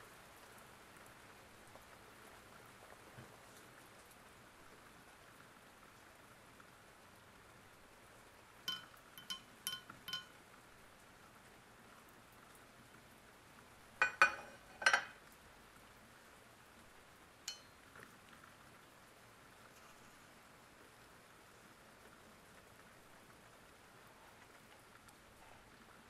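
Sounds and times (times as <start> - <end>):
metallic clinks of tools: 8.7 - 10.4
metal clanks: 14.0 - 15.1.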